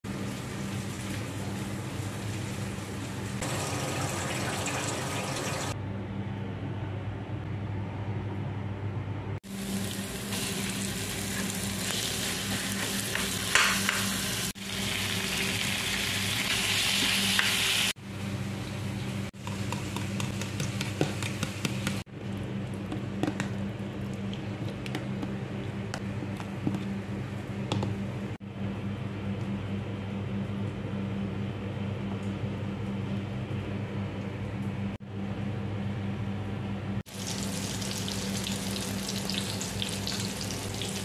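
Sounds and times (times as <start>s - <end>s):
food sizzling in oil: 0.1s - 5.8s, 9.5s - 18.0s, 37.1s - 41.0s
constant low hum: 0.1s - 41.0s.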